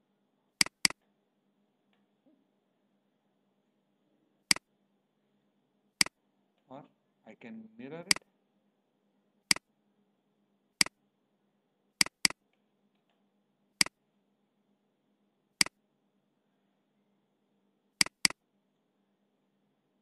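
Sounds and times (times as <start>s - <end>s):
computer mouse clicking: 0.6s - 1.0s, 12.0s - 12.4s, 18.0s - 18.4s.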